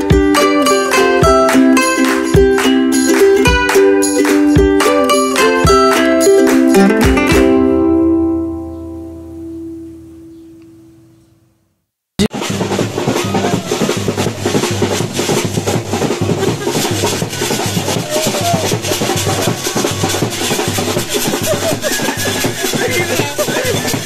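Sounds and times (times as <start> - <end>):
fast live drumming: 0.0 - 7.6, 12.2 - 24.0
flute playing: 0.0 - 10.4, 16.8 - 22.8
plucked-string music: 0.0 - 11.3, 12.2 - 24.0.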